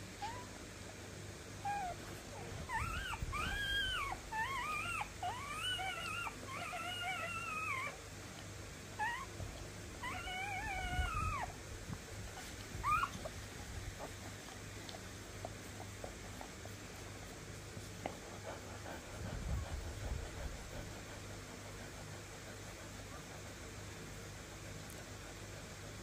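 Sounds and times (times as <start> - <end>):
puppies whimpering and squeaking: 0.2 - 0.6, 1.6 - 8.0, 9.0 - 9.4, 10.0 - 11.6, 12.3 - 14.8.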